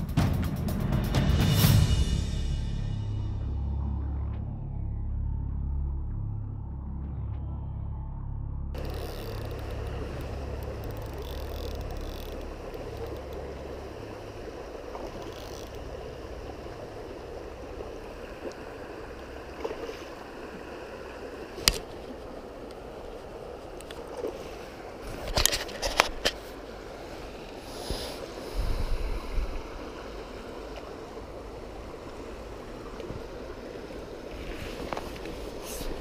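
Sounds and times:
low background music: 0.0 - 14.0
river water flowing: 8.8 - 36.0.

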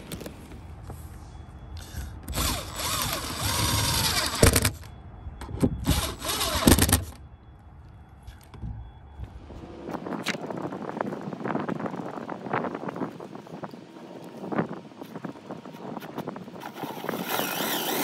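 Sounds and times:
cordless screwdriver motor: 2.3 - 4.7, 5.9 - 6.9, 16.7 - 18.0.

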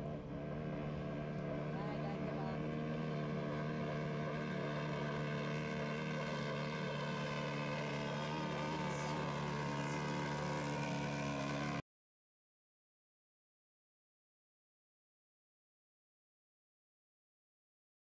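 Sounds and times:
motocross engine at high revs: 0.3 - 11.8.

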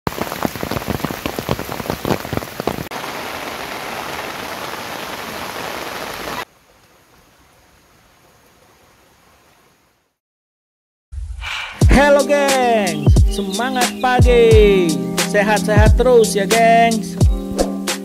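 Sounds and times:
rain pattering on tent fabric: 0.1 - 9.6.

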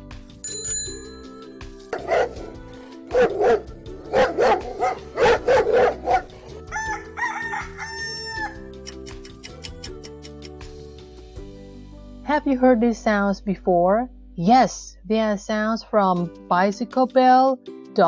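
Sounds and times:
light background music: 0.0 - 18.0
rooster crowing: 6.6 - 8.7.

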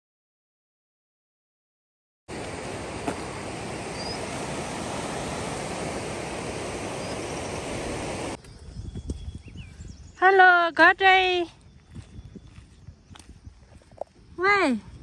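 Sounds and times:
outdoor rushing noise: 2.3 - 8.4.

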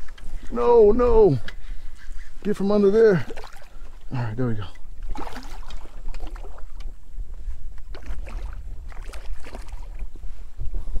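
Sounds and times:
low wind rumble on microphone: 3.8 - 11.0.

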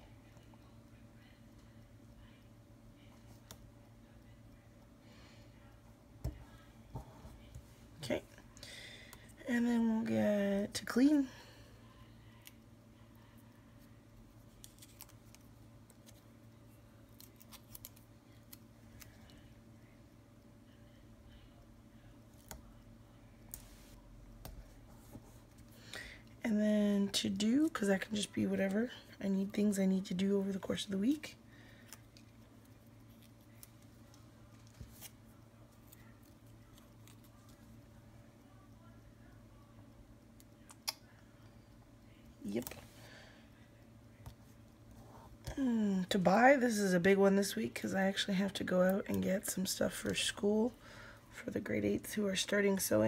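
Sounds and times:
faint low hum: 0.0 - 53.0
sticker peeling and paper rustles: 14.4 - 16.3, 17.1 - 19.4, 31.9 - 37.7
paper stickers crinkling: 14.5 - 16.2.

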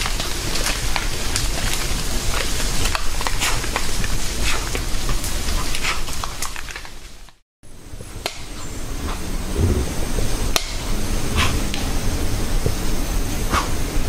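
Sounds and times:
rustling in undergrowth: 0.0 - 7.4
twigs snapping: 0.0 - 7.4.

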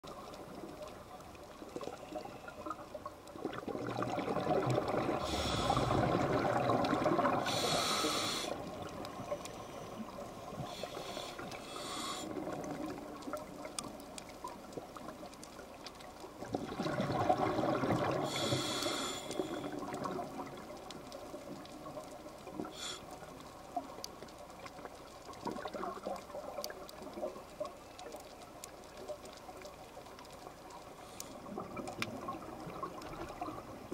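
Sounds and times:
low underwater wash: 0.0 - 33.9
diver's exhaled bubbles: 3.4 - 8.0, 16.5 - 18.4.

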